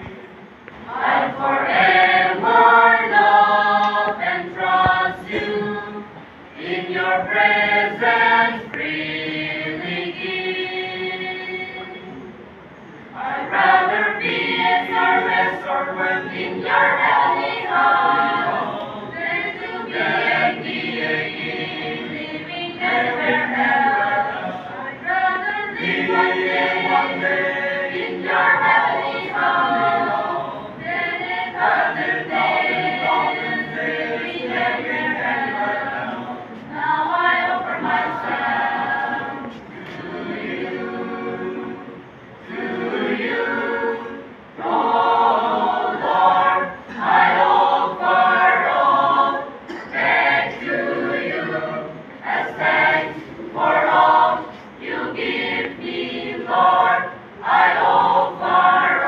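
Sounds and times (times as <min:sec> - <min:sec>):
choir singing a cappella: 0:00.0 - 0:59.0.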